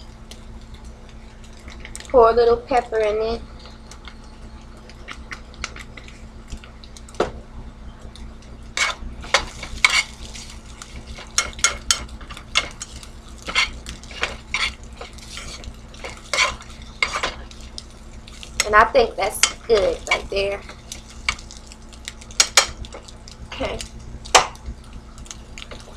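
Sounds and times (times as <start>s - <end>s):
steady low hum: 0.0s - 25.9s
utensil scraping frying pan: 8.8s - 21.4s.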